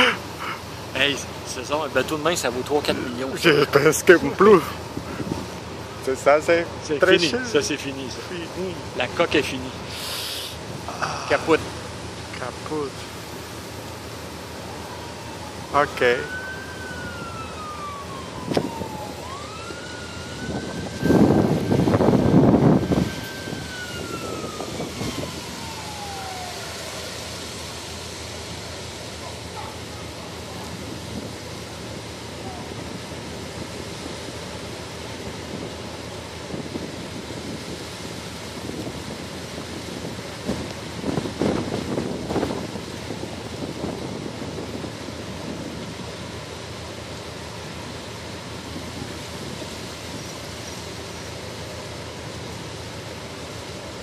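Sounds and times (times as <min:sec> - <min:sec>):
low engine hum: 0:00.0 - 0:54.0
water sounds from boat: 0:00.0 - 0:54.0
wind rumble on microphone: 0:04.8 - 0:05.7, 0:15.0 - 0:27.0, 0:29.6 - 0:50.8
emergency siren winding down: 0:13.8 - 0:54.0.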